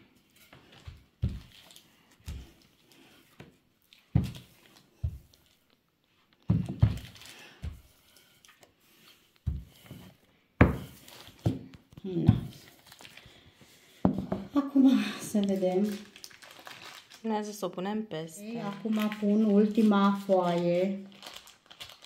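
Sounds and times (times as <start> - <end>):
rolling pin thumping on dough: 10.6 - 12.6
baking paper rustling: 15.4 - 17.6, 18.6 - 22.0.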